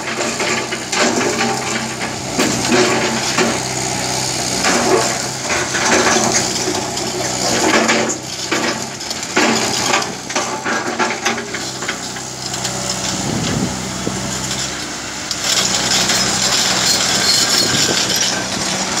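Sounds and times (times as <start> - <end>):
excavator diesel engine running: 0.0 - 19.0
bucket scraping through rock: 15.7 - 19.0.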